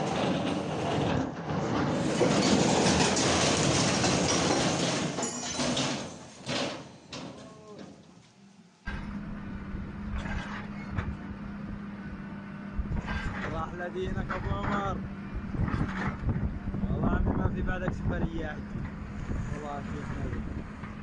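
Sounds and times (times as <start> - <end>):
excavator crashing down: 0.0 - 8.0
engine hum: 7.1 - 21.0.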